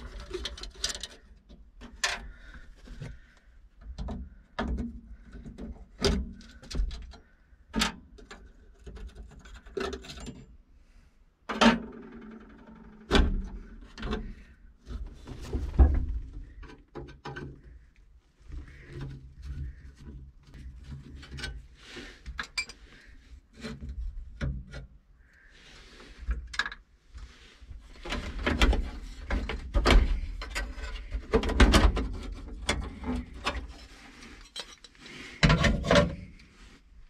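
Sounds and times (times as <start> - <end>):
metal parts clattering: 33.8 - 35.9.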